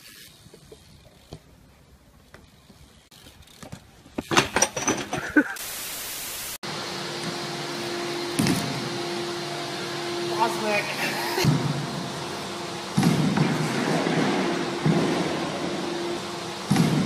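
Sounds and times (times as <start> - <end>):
bike clattering on concrete: 0.0 - 5.4
loud hiss: 5.5 - 6.6
low hum: 6.7 - 17.0
thump: 16.7 - 17.0.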